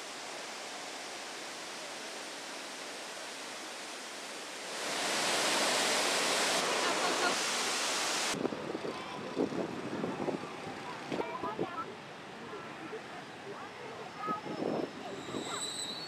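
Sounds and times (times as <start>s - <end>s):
river water rushing: 0.0s - 8.4s
waterfall roaring: 0.0s - 8.4s.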